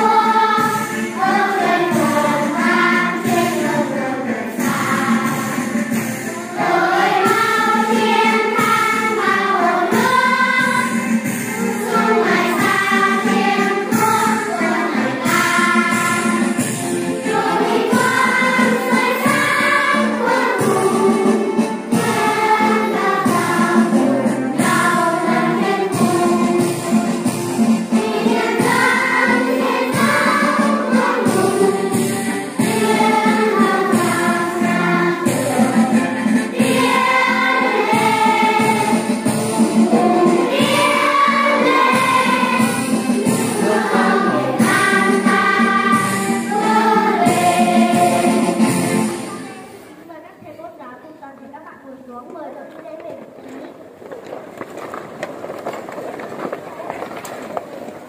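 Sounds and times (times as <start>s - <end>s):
choir singing: 0.0s - 49.6s
instrumental backing: 0.0s - 50.1s.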